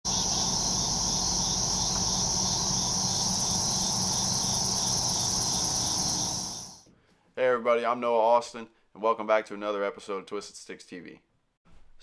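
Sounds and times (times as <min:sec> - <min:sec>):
crickets trilling: 0:00.1 - 0:06.8
fast-pulsing insect: 0:00.1 - 0:06.8.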